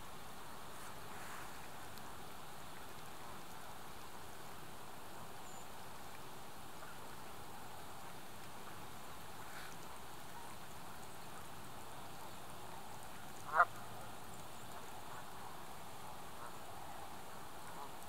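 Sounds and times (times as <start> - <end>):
faint hiss: 0.0 - 18.0
water bird call: 5.3 - 18.0.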